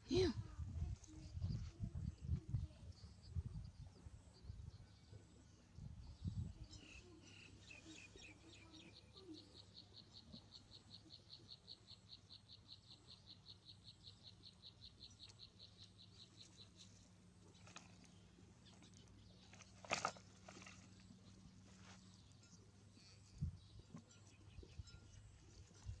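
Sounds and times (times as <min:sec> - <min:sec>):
low steady hum: 0:09.8 - 0:26.0.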